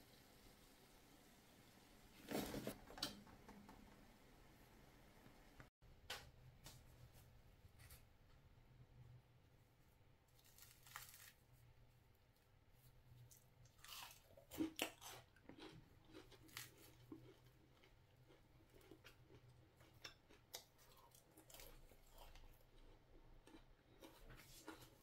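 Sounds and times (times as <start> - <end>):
fried dough crunching: 10.3 - 11.6, 13.3 - 25.0.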